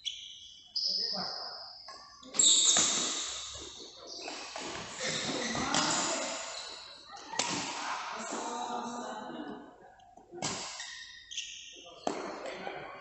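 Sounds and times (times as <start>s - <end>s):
racket hitting shuttlecock: 2.7s - 3.5s, 7.3s - 7.8s.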